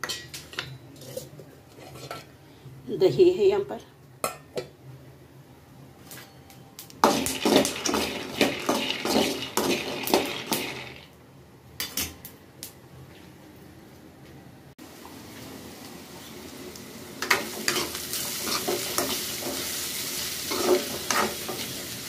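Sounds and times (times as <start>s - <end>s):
nuts rattling in metal pan: 7.0s - 11.1s.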